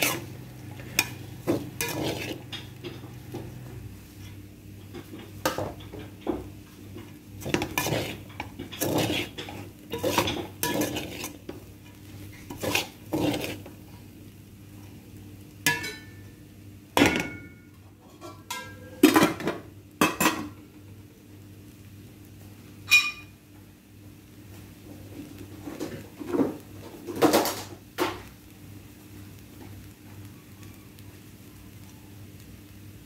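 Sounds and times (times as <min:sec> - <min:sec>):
spoon scraping rice in metal pot: 0:00.0 - 0:02.9, 0:07.4 - 0:11.5, 0:12.3 - 0:13.8.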